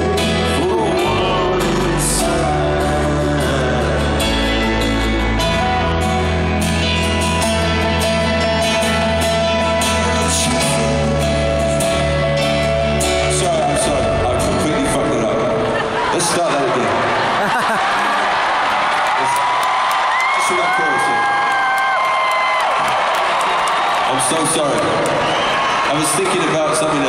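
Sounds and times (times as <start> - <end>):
man singing lead vocal: 0.0 - 6.6, 8.9 - 15.7
live rock band playing: 0.0 - 15.9.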